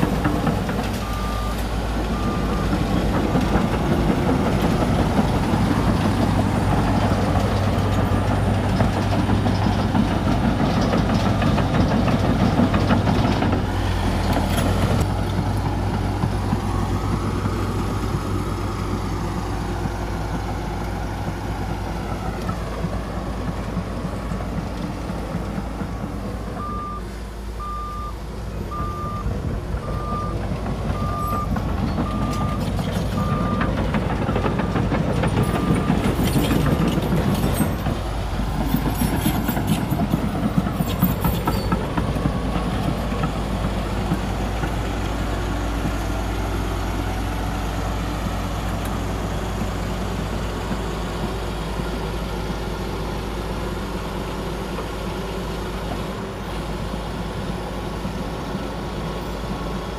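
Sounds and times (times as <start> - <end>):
diesel machinery running: 0.0 - 59.9
reverse warning beeper: 1.0 - 1.6, 26.6 - 32.6.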